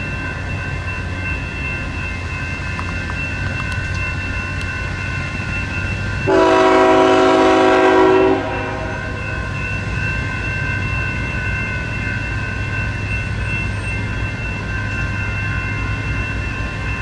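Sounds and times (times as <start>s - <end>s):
locomotive air horn blast: 6.3s - 9.0s.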